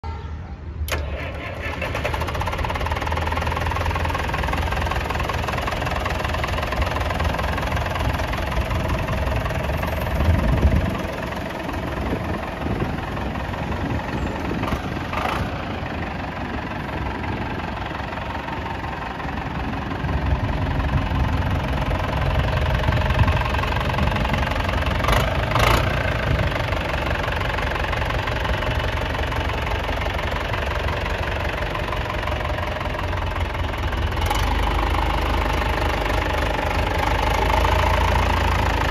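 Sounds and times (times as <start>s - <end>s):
tractor engine knocking clatter: 0.9s - 38.9s.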